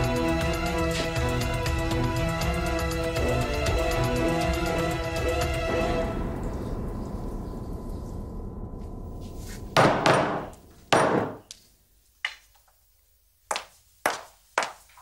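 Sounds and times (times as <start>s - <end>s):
background music: 0.0s - 10.7s.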